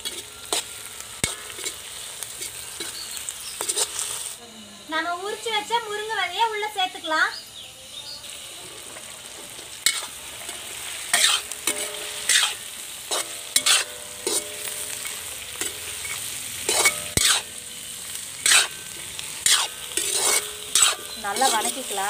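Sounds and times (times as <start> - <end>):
food sizzling in hot oil: 0.0 - 22.0
ladle scraping and stirring: 3.6 - 4.3, 8.6 - 17.6, 18.4 - 22.0.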